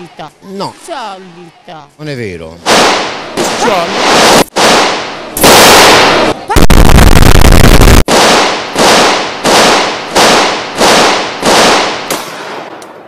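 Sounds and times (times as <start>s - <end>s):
loud distorted noise: 5.5s - 8.1s.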